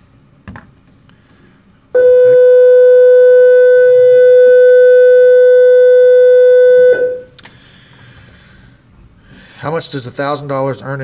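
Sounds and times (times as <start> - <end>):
loud steady tone: 1.8 - 7.5.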